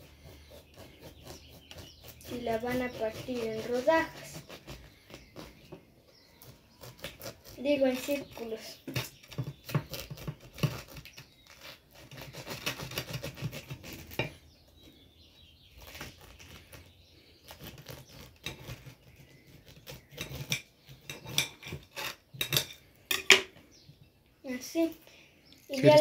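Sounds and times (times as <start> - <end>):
knife sawing through pineapple: 0.0 - 14.3, 15.7 - 22.2.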